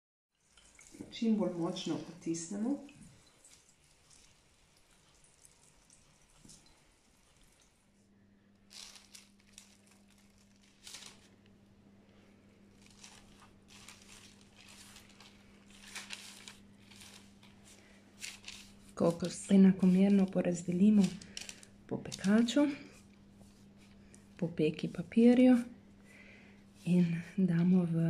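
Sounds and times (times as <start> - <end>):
low steady hum: 0.4 - 28.0
fingers crumbling coconut pulp: 8.6 - 24.4.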